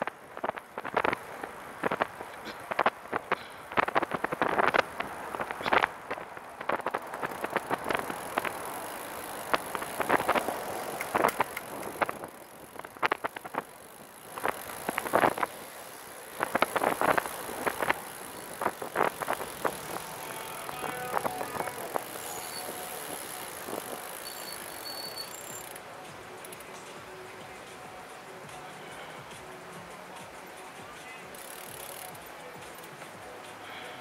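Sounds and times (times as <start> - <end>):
steady high hiss: 0.0 - 34.0
trike rattling over pavement: 0.0 - 34.0.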